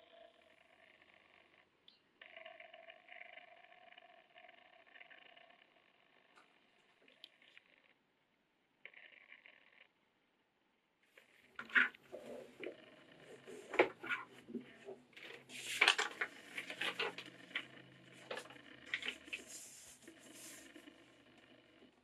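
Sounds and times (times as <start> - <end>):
paper crinkling and rustling: 13.5 - 17.6.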